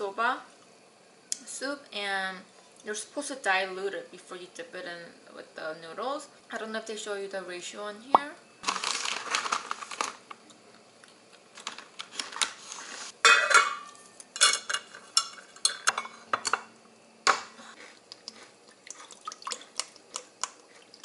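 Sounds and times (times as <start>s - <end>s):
dishes clicking and knocking: 13.3s - 16.7s.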